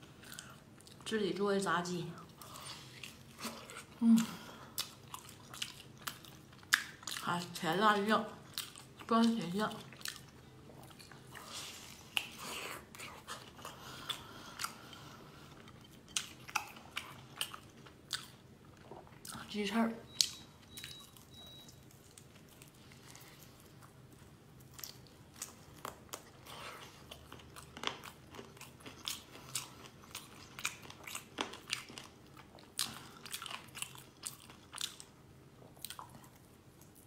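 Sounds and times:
crunchy chewing: 20.1s - 37.0s.

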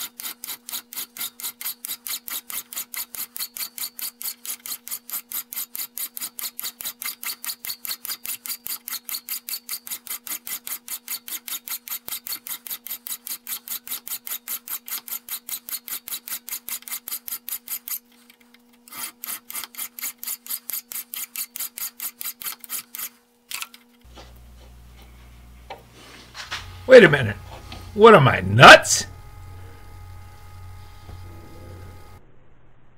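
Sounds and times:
hand file rasping on metal: 0.0s - 18.1s, 18.9s - 23.2s.

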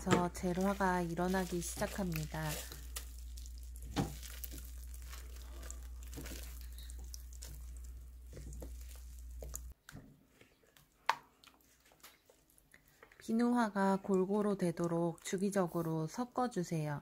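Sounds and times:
spatula squishing and scraping: 0.0s - 13.4s
low steady hum: 0.0s - 17.0s.

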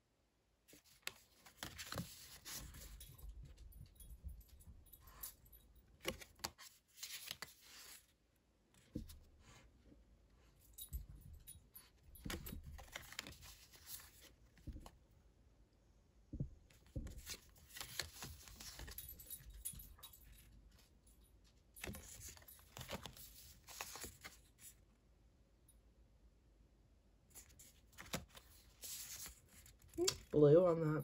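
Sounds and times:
cards rustling and clicking: 0.7s - 3.1s, 5.9s - 8.2s, 12.2s - 15.0s, 16.7s - 19.6s, 21.8s - 24.7s, 27.3s - 30.4s.

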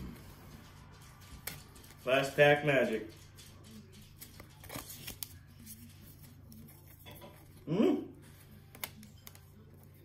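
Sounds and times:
trading cards sliding and flicking: 4.1s - 6.7s.

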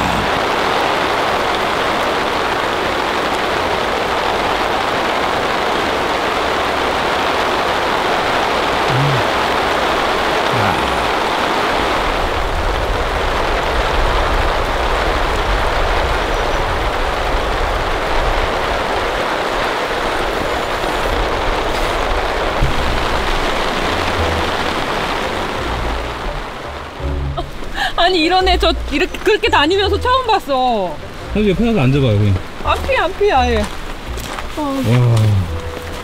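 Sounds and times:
heavy rain pouring: 0.0s - 36.0s
low rumbles: 20.1s - 36.0s.

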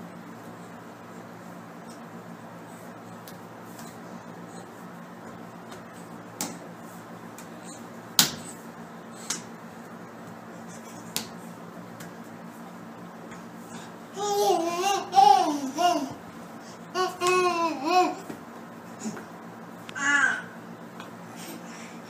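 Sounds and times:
low room hum: 0.0s - 22.0s
hands slapping on tiled floor: 5.7s - 6.7s, 7.3s - 8.5s, 9.2s - 9.5s, 11.0s - 12.3s, 17.2s - 17.5s.

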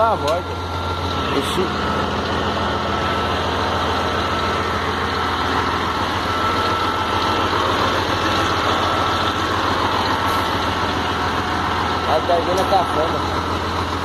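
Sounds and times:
diesel truck engine idling: 0.0s - 14.0s
steady high whine: 0.0s - 14.0s.

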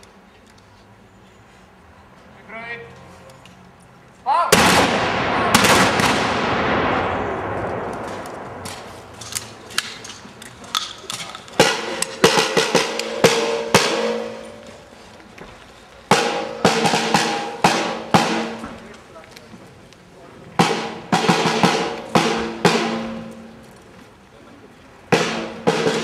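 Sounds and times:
rifle volley echoing: 4.5s - 10.3s
drum beaten irregularly: 11.6s - 14.6s, 16.1s - 18.7s, 20.6s - 23.6s, 25.1s - 26.0s.

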